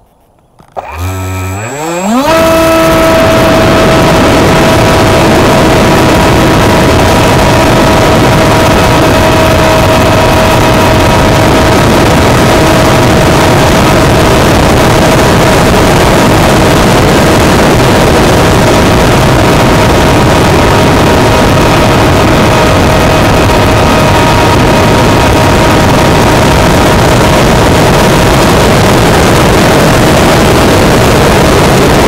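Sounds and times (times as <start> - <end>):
wind rush on microphone: 0.0 - 32.0
electric motor and propeller: 0.4 - 32.0.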